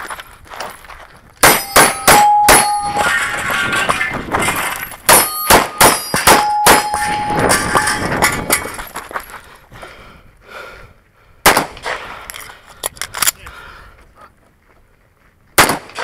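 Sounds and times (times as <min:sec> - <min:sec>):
pistol shots: 0:01.4 - 0:03.1, 0:05.1 - 0:07.7, 0:11.4 - 0:12.1, 0:15.6 - 0:16.0
steel targets clanging: 0:01.4 - 0:08.9.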